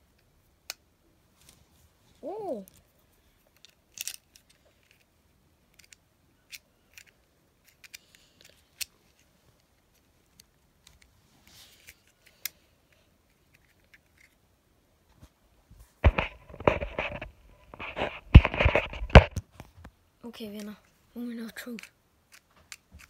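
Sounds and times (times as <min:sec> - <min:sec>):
soft rustle: 0:01.2 - 0:05.1, 0:07.6 - 0:14.4.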